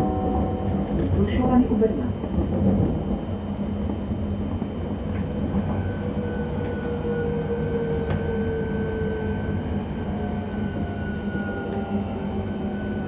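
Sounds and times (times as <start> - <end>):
train low rumble: 0.0 - 13.0.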